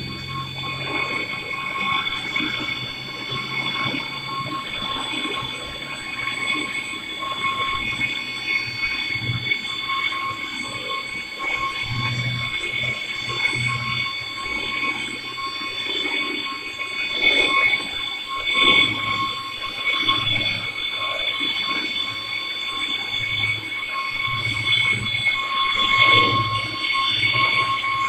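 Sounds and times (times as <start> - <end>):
low machine hum: 0.0 - 17.9
lathe cutting squeal: 0.0 - 28.0.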